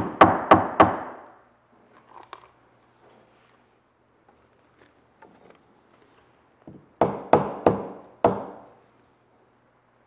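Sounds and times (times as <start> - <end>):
hammer tapping wood: 6.7 - 8.6.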